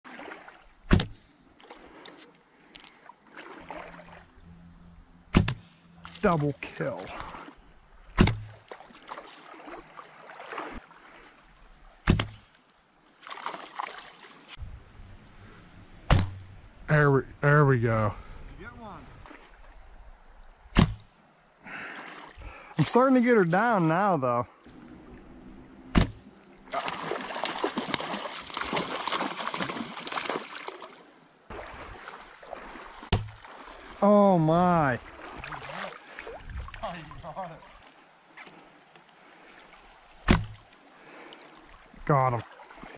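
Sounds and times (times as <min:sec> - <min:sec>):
water splashing and sloshing: 0:00.0 - 0:42.9
bow string snap: 0:16.1 - 0:16.5.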